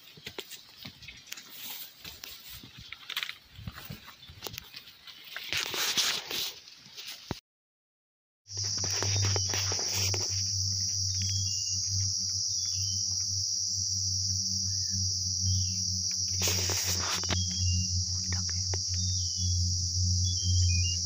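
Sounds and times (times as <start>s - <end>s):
brief rustle: 1.1s - 7.4s
high-pitched insect drone: 8.5s - 21.0s
low steady hum: 8.5s - 21.0s
bird chirping: 10.7s - 21.0s.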